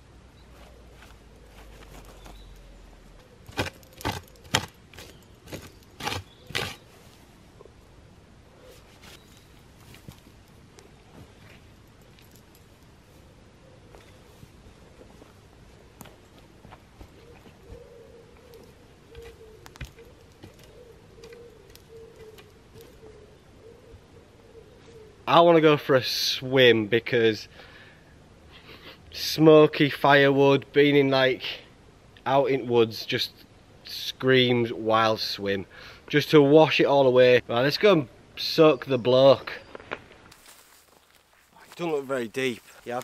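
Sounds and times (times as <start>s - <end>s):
tool raking through pine needles: 3.5s - 7.1s
stick scraping through ash and soil: 3.5s - 7.3s, 40.3s - 43.0s.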